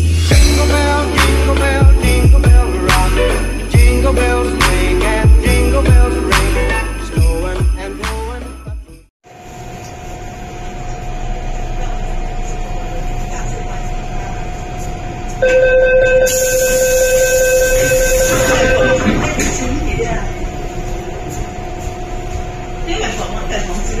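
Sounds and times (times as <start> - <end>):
train equipment humming: 9.3 - 24.0
door-closing warning tone: 15.4 - 19.8.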